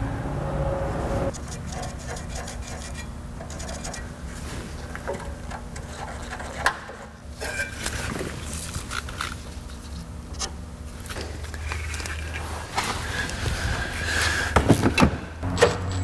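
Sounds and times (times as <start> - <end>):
steady low hum: 0.0 - 15.6
rubbing and scraping metal: 1.3 - 10.1.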